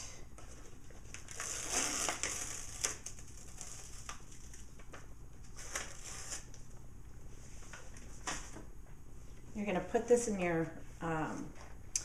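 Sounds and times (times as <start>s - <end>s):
plastic sheet peeling rustle: 0.4s - 6.6s.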